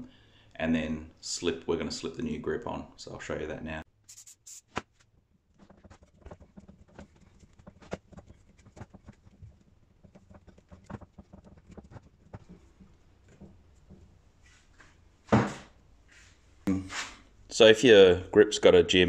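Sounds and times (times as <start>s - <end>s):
rubber grip clicking and rubbing: 5.6s - 13.5s.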